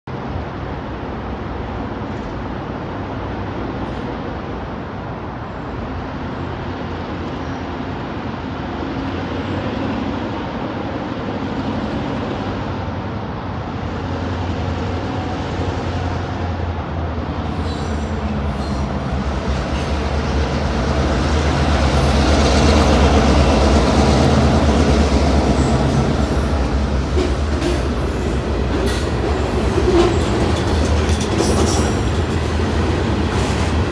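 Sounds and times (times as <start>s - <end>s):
diesel locomotive engine drone: 0.1s - 33.9s
train cars rolling with wheel clicks: 25.7s - 33.9s.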